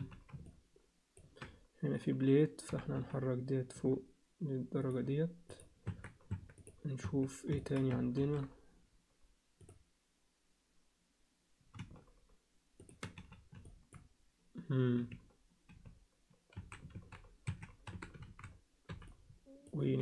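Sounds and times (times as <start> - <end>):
keyboard and mouse clicking: 0.0 - 0.6, 4.9 - 8.2, 11.6 - 14.1, 15.1 - 19.4
man humming: 14.6 - 15.2.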